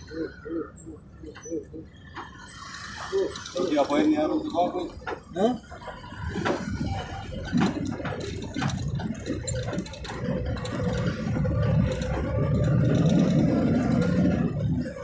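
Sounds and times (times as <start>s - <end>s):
truck engine rumble: 0.0s - 15.0s
cab rattles and clicks: 3.4s - 15.0s.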